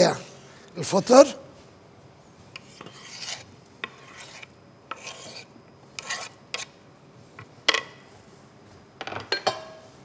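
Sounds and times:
knife scraping wooden cutting board: 2.6 - 6.7.

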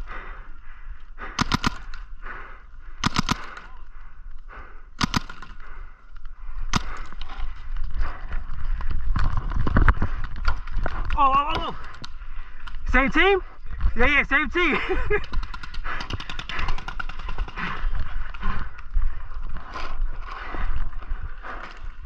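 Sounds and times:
paintball guns firing: 1.2 - 2.1, 3.0 - 3.8, 4.6 - 5.8, 6.6 - 7.5, 15.1 - 17.9.

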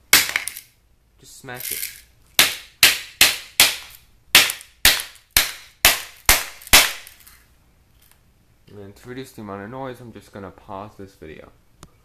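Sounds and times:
hammer striking plastic on concrete: 2.4 - 7.2.

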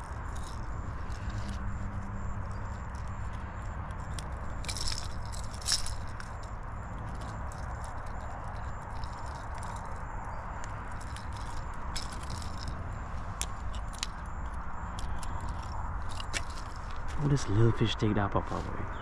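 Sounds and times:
metal pliers and hooks clicking: 0.0 - 17.2
steady background noise: 0.0 - 19.0.

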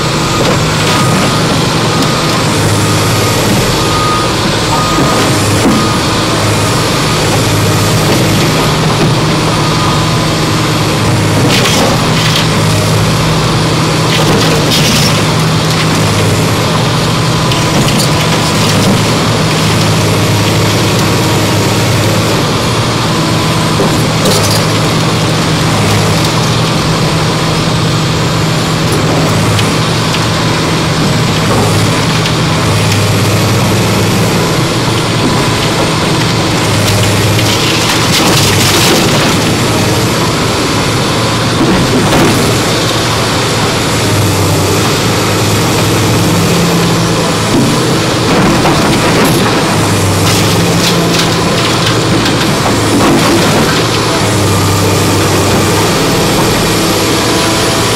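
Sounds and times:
excavator diesel engine running: 0.0 - 57.9.

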